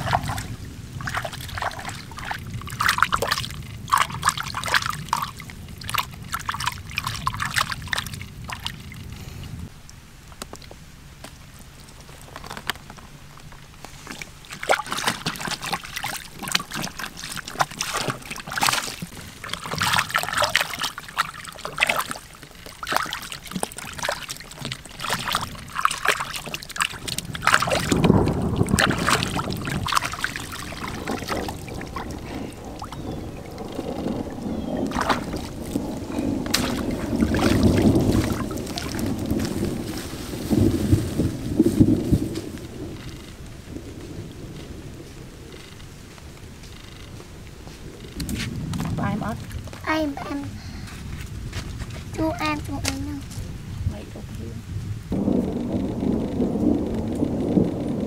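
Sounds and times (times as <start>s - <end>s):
loud low rumbling: 0.0s - 9.8s, 23.8s - 58.0s
water splashing and sloshing: 0.0s - 58.0s.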